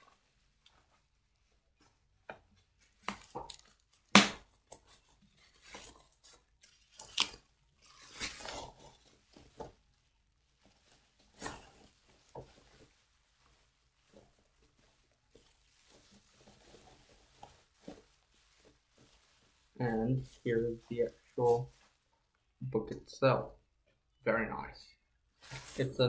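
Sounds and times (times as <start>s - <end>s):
bubble wrap tearing and crinkling: 2.8s - 20.4s.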